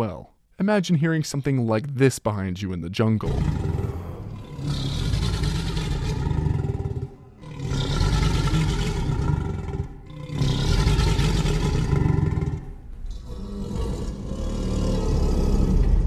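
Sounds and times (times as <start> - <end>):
deep rumbling creature calls: 3.2 - 16.0.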